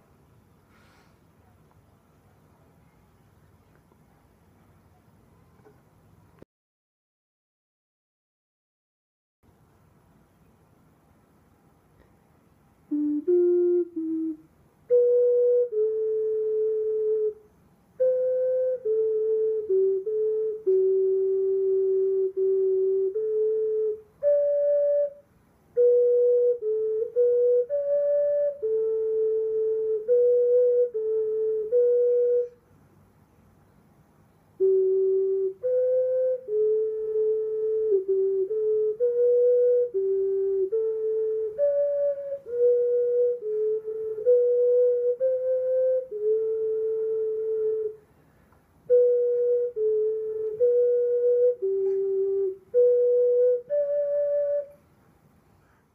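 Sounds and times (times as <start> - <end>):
ocarina melody: 12.9 - 32.6, 34.6 - 48.1, 48.8 - 54.9.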